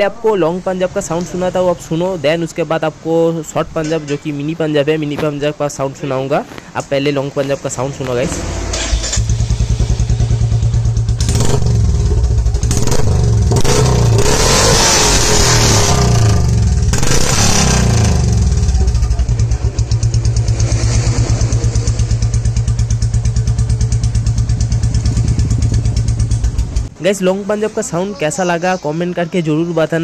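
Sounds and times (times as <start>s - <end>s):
motorcycle engine idling: 8.4s - 14.2s, 16.2s - 26.9s.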